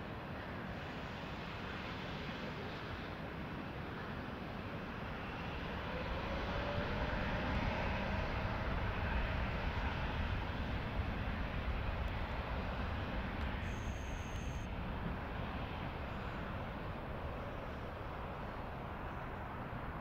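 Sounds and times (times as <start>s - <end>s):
faint rising whine: 5.2s - 20.0s
jet engines spooling up: 11.6s - 19.4s.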